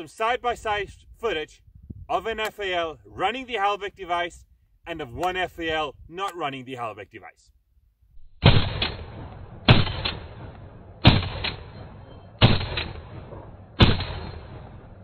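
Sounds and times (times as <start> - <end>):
rifle shots: 8.4 - 15.0.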